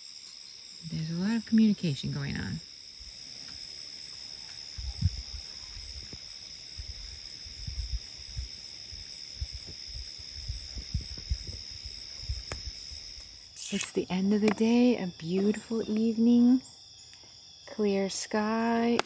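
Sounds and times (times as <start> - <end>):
crickets chirping: 0.0 - 19.0
soft low bumps: 4.7 - 13.3.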